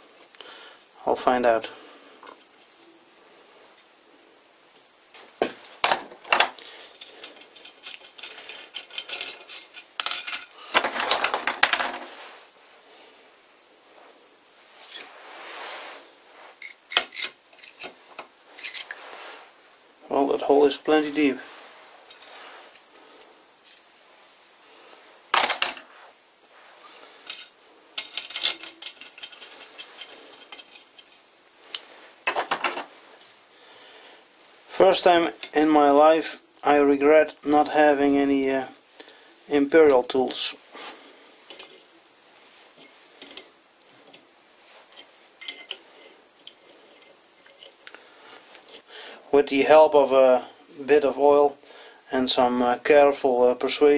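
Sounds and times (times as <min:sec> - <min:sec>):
metal bolt and washer clinking: 0:05.8 - 0:12.0, 0:16.6 - 0:19.0, 0:27.3 - 0:31.2, 0:44.8 - 0:47.9
metal parts clattering: 0:05.8 - 0:12.1, 0:16.6 - 0:19.0, 0:25.3 - 0:25.9, 0:27.2 - 0:31.2, 0:32.2 - 0:33.0, 0:44.8 - 0:47.9
bolt clinking on metal plate: 0:44.9 - 0:45.8.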